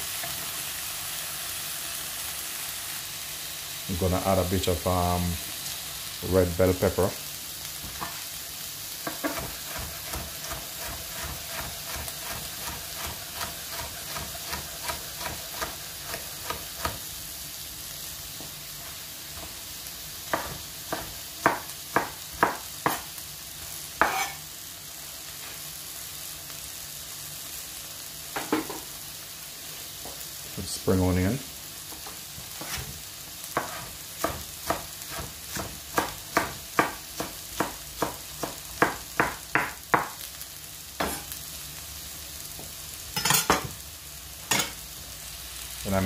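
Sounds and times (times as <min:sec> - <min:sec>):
mushrooms sizzling in a pan: 0:00.0 - 0:46.0
knife chopping on wooden board: 0:09.0 - 0:17.0, 0:20.3 - 0:23.1, 0:24.0 - 0:24.3, 0:32.6 - 0:32.9, 0:33.6 - 0:40.2.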